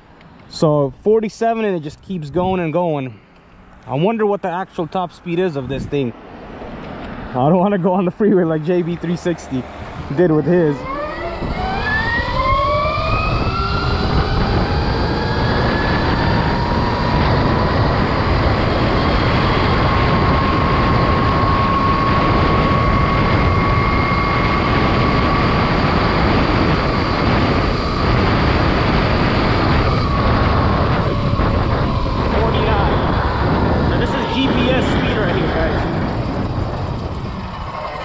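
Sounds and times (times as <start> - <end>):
wind rush on microphone: 1.5 - 2.9, 4.9 - 38.0
electric motor whining: 10.2 - 38.0.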